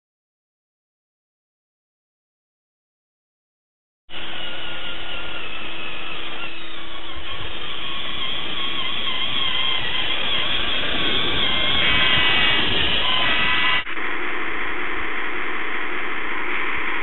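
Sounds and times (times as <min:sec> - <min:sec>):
low hum: 0:04.1 - 0:17.0
toy bulldozer motor whirring: 0:04.2 - 0:13.9.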